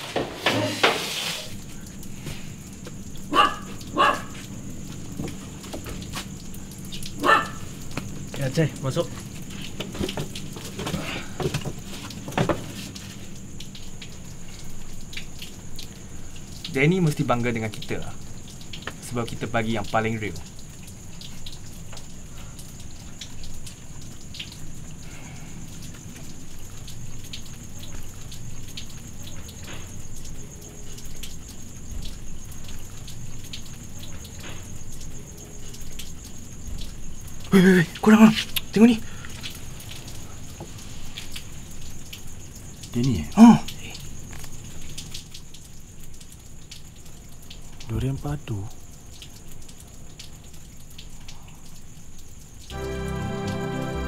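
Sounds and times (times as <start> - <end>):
chairs knocking and shuffling: 0.0 - 1.5, 9.2 - 13.0
steady rain hiss: 0.0 - 54.0
rain drop ticks: 1.4 - 54.0.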